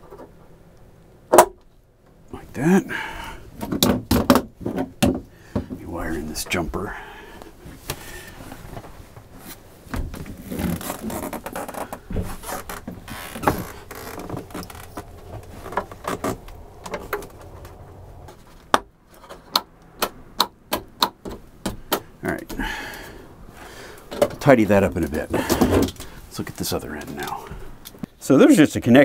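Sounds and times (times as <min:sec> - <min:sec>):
hands handling wires: 0:07.4 - 0:20.0, 0:23.9 - 0:28.1.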